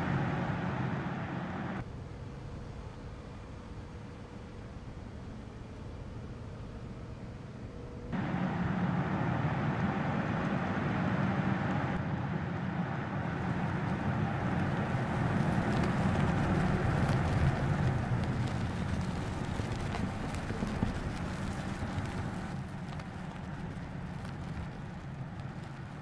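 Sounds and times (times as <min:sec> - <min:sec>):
car engine and tyre noise: 0:00.0 - 0:26.0
tyres crackling on gravel: 0:13.4 - 0:26.0.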